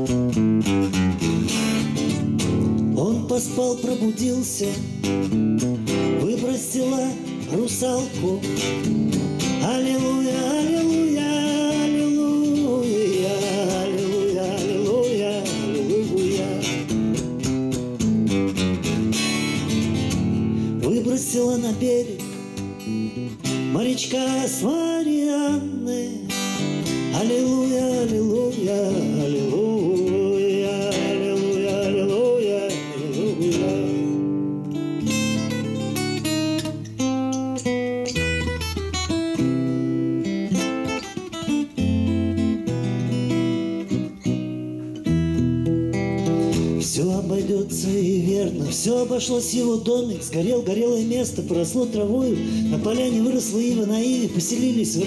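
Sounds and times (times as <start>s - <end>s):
fingerpicked acoustic guitar: 0.0s - 55.0s
man singing: 2.7s - 17.3s, 19.1s - 36.9s, 46.2s - 55.0s.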